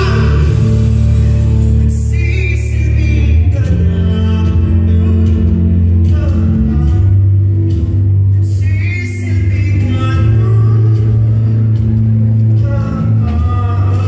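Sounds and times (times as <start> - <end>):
amplified live music: 0.0 - 14.0
person singing: 0.0 - 14.0.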